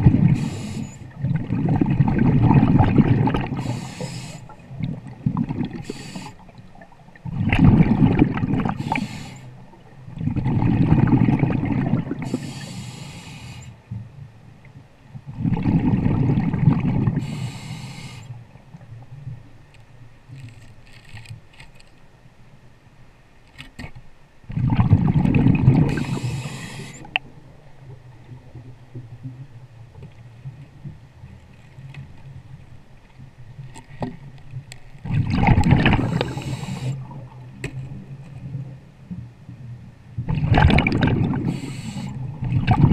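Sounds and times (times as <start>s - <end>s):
diver breathing through regulator: 0.3s - 1.1s, 3.5s - 4.6s, 5.8s - 6.5s, 8.7s - 9.6s, 12.2s - 13.8s, 17.2s - 18.4s, 25.8s - 27.2s, 36.0s - 37.1s, 41.3s - 42.2s.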